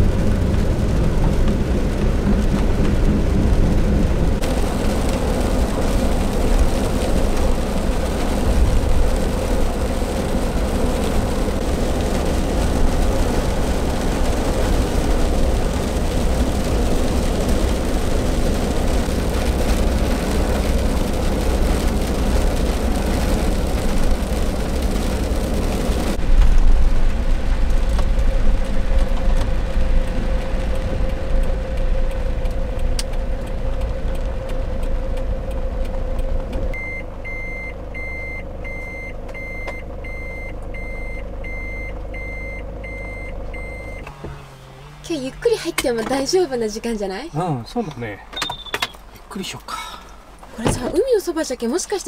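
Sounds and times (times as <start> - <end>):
engine and tyre noise: 0.0 - 52.0
reversing alarm beeping: 36.8 - 44.1.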